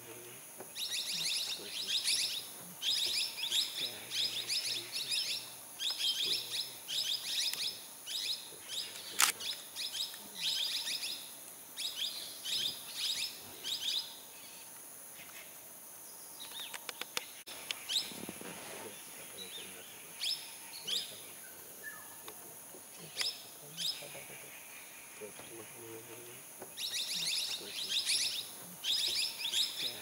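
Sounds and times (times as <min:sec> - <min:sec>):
sharp click: 0:08.9 - 0:10.2.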